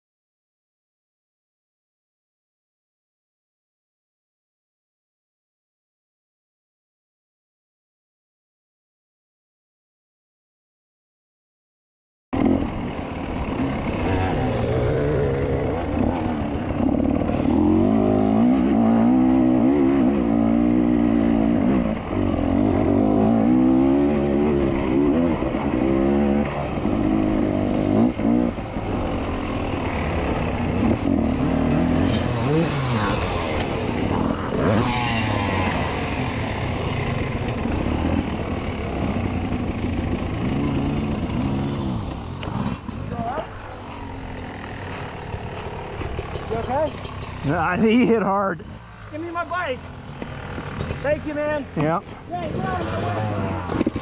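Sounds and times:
dirt bike engine revving: 12.4 - 54.0.

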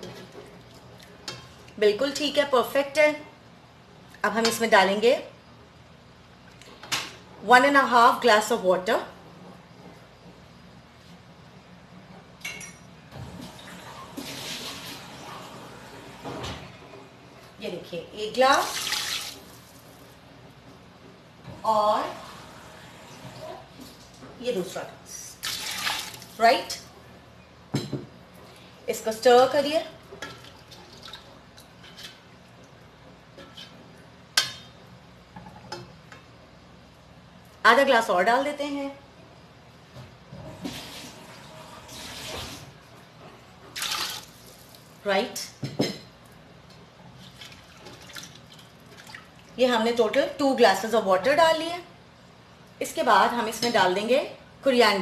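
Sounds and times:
water pouring: 18.6 - 19.8, 25.4 - 26.4, 43.8 - 44.8.

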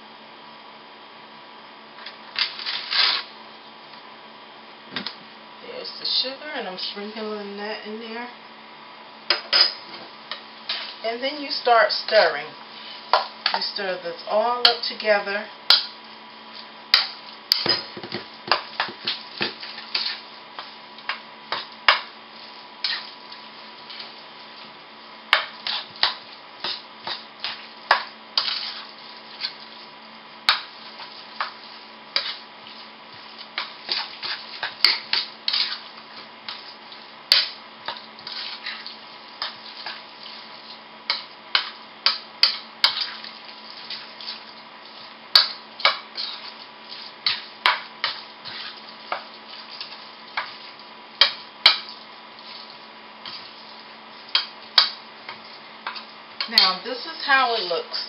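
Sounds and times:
spoon scraping metal bowl: 22.8 - 23.1, 25.4 - 29.6, 32.2 - 32.8, 33.6 - 35.9, 37.3 - 40.4, 45.4 - 50.6.

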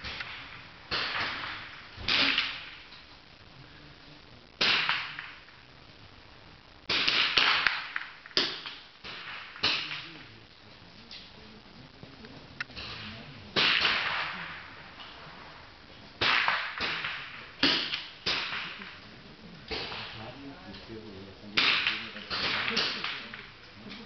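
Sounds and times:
rifle shots with echo: 0.0 - 2.9, 4.6 - 5.5, 6.9 - 10.2, 12.8 - 14.9, 16.2 - 19.0, 19.7 - 20.3, 21.5 - 23.5.

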